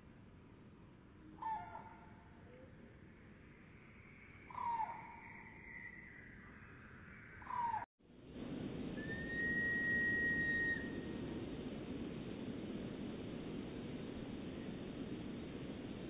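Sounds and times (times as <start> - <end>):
slowed bird calls: 1.2 - 7.9, 8.9 - 11.4
long steady whistled note: 8.4 - 16.0.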